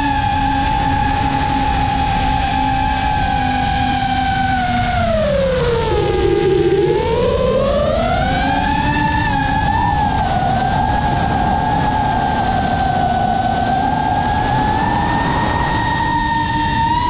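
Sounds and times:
drone motors whining: 0:00.0 - 0:17.0
wind rushing: 0:08.2 - 0:17.0.

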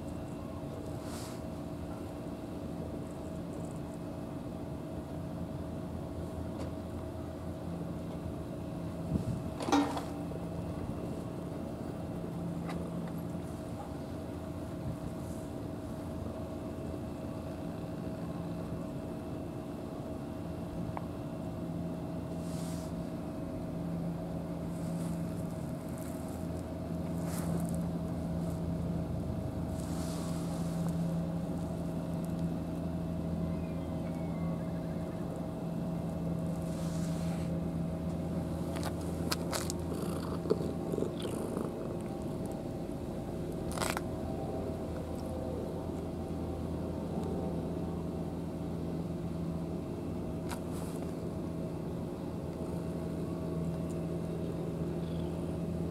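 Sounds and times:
low mechanical hum: 0:00.0 - 0:55.9.

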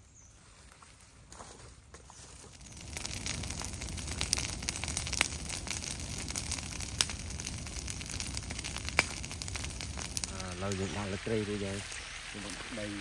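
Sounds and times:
food sizzling in a pan: 0:02.8 - 0:13.0.

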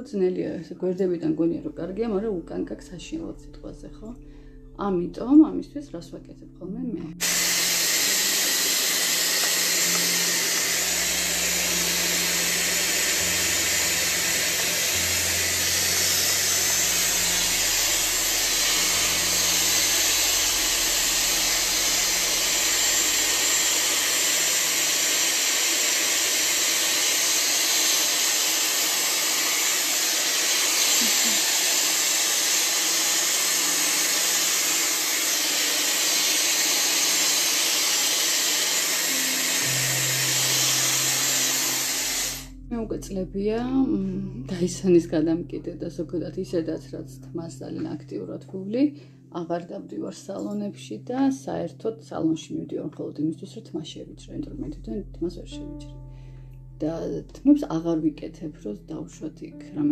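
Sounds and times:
hair styler blowing air: 0:07.1 - 0:42.6.

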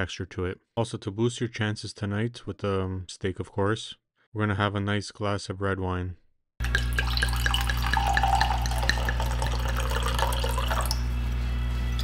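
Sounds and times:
wine pouring into a glass: 0:06.6 - 0:11.1
steady low hum: 0:06.6 - 0:12.0.

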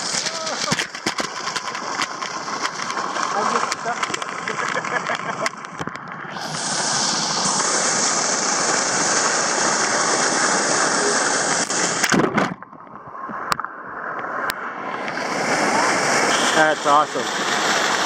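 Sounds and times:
water spray splashing: 0:00.0 - 0:05.5, 0:06.4 - 0:12.1, 0:15.0 - 0:18.0.

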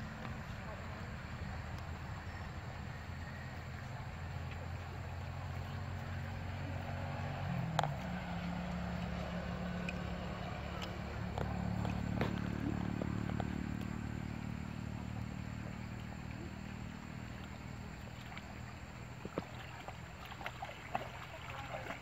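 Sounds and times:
motor engine humming: 0:00.0 - 0:22.0.

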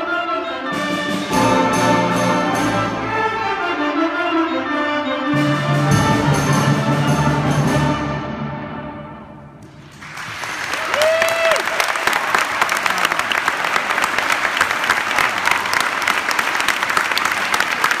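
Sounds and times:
audience applause: 0:09.7 - 0:18.0
high cheer from crowd: 0:09.9 - 0:18.0.

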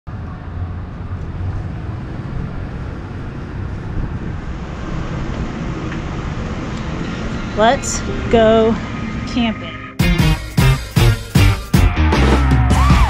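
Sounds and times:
low engine rumble: 0:00.1 - 0:11.0.

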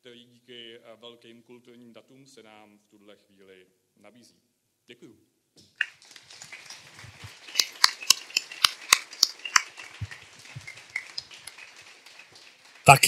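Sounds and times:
scattered applause: 0:05.8 - 0:13.0.

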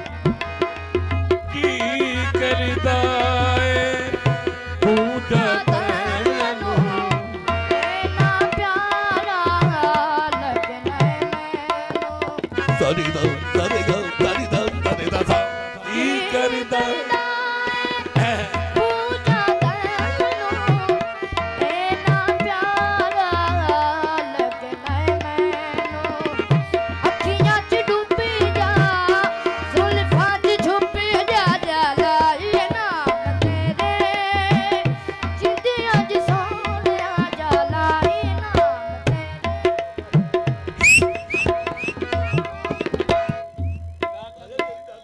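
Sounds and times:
harmonium: 0:00.0 - 0:45.0
tabla drumming: 0:00.0 - 0:45.0
person singing: 0:12.8 - 0:20.7.

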